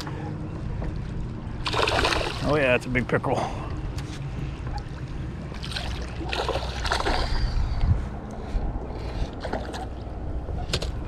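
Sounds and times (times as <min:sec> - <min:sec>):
steady low rumble: 0:00.0 - 0:11.0
fish thrashing and splashing: 0:01.6 - 0:02.5, 0:05.5 - 0:07.6.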